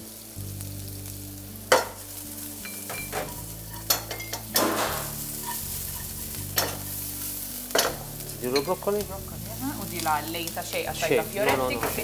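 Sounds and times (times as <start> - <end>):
onions sizzling in a pan: 0.0 - 12.0
metal utensils clattering: 2.6 - 6.9, 7.7 - 8.9, 11.1 - 12.0.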